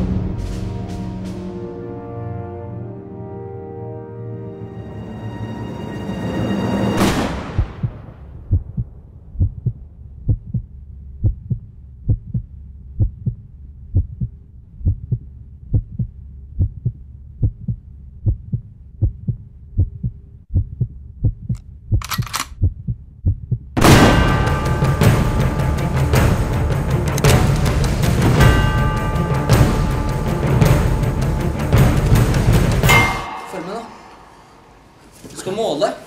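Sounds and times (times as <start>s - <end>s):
heartbeat thumps: 7.6s - 24.2s.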